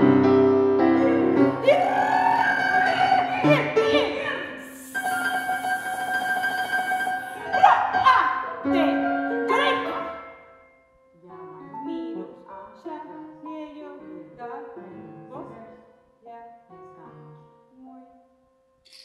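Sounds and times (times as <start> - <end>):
grand piano played quietly: 0.0 - 4.6.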